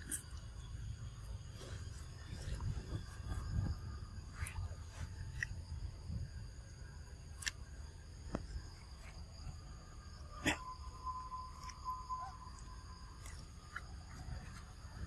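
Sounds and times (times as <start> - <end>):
insects droning: 0.0 - 15.0
whistle-like tone: 9.0 - 15.0.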